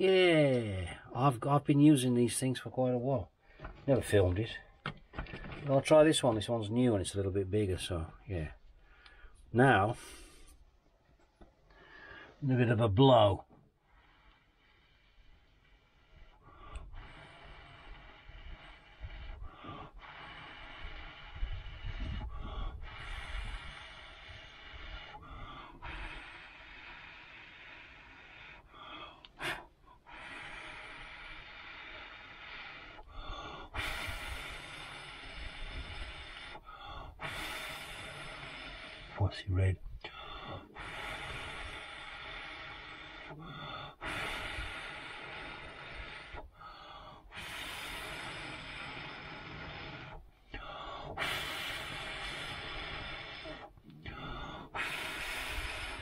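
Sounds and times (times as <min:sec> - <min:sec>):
sharp breath in: 0:11.7 - 0:12.4, 0:13.8 - 0:39.2, 0:40.1 - 0:56.0
man blowing into fire: 0:13.9 - 0:39.2, 0:40.1 - 0:56.0.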